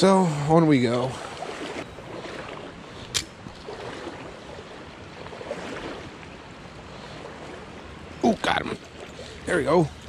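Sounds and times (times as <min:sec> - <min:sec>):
sharp click: 0:03.1 - 0:03.3.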